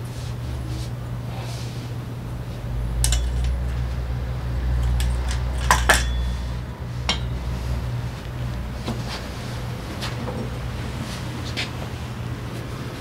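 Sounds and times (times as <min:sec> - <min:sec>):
steady low hum: 0:00.0 - 0:13.0
metal parts clinking: 0:03.0 - 0:04.0, 0:04.7 - 0:06.5.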